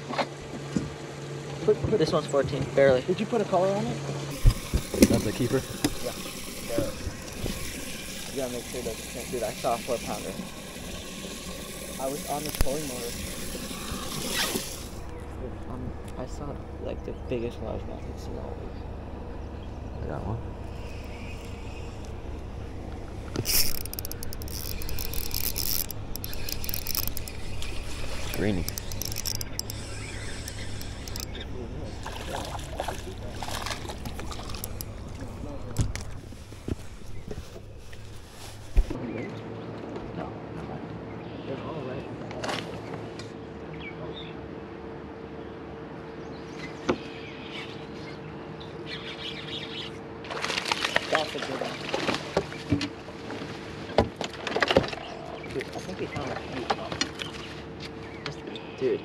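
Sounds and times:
birds chirping: 0:04.1 - 0:39.7, 0:42.8 - 0:50.2, 0:54.8 - 0:59.0
steady hum: 0:04.2 - 0:39.0
fishing reel drag clicking: 0:11.8 - 0:15.1, 0:23.3 - 0:35.2.

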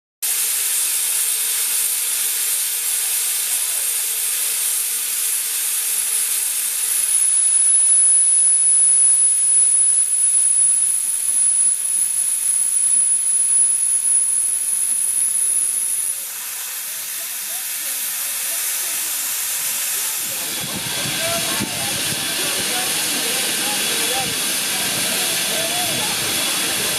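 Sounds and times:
steam venting hiss: 0:00.2 - 0:26.9
thin high-pitched tone: 0:07.0 - 0:20.3.

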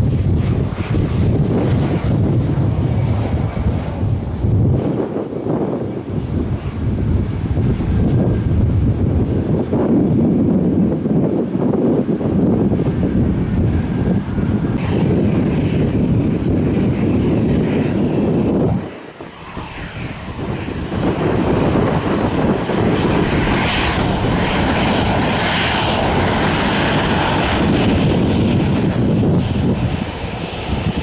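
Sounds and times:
aircraft engines running: 0:00.0 - 0:31.0.

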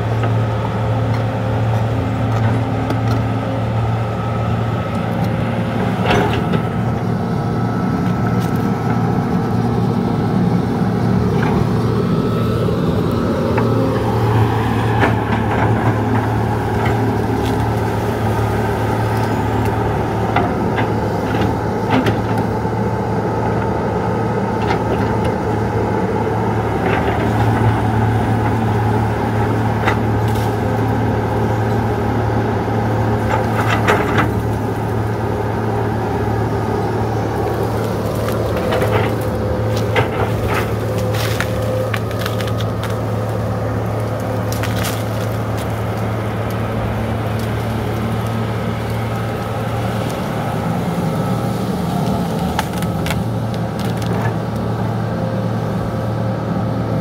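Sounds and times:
excavator diesel engine running: 0:00.0 - 0:57.0
sharp cracks and snaps: 0:37.4 - 0:43.4, 0:44.0 - 0:46.6, 0:52.0 - 0:54.7.

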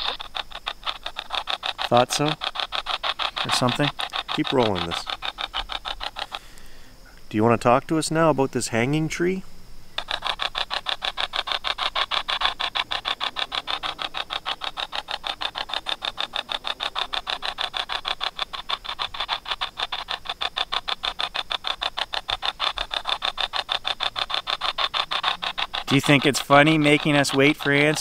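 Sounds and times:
chopping static from phone speaker: 0:00.0 - 0:06.5, 0:10.0 - 0:28.0.

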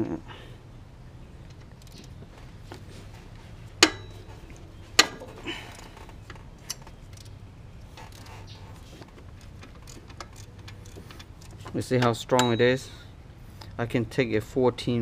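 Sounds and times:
faint metal clinks: 0:03.8 - 0:07.3, 0:09.4 - 0:13.1
ratchet cracking bolt loose: 0:05.0 - 0:07.4, 0:09.4 - 0:12.5.

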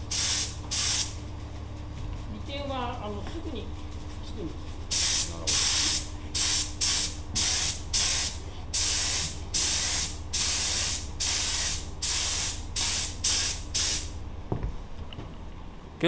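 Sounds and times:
spray gun hissing bursts: 0:00.0 - 0:01.1, 0:04.9 - 0:14.1.

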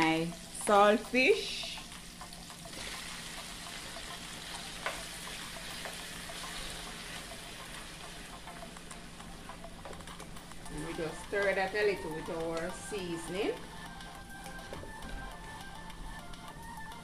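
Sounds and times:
oil sizzling in a frying pan: 0:00.0 - 0:09.9.

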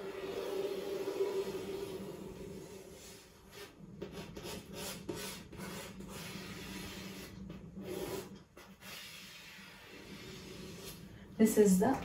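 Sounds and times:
chalk scraping on chalkboard: 0:03.0 - 0:11.1.

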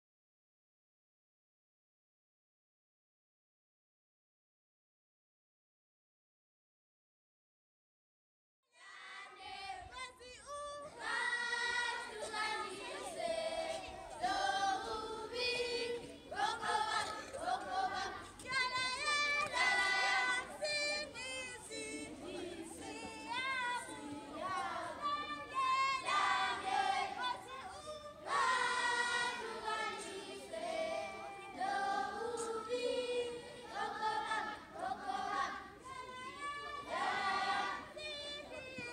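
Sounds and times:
children singing in chorus: 0:08.8 - 0:38.9.

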